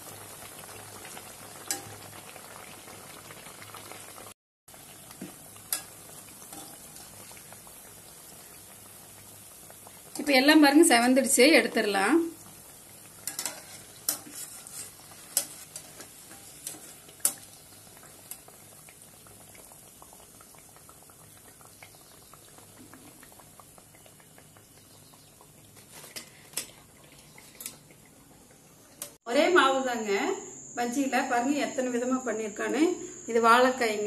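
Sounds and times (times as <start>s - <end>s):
batter fritters sizzling in oil: 0.0s - 29.3s
metal strainer clinking on pan: 1.7s - 2.0s, 13.2s - 17.4s.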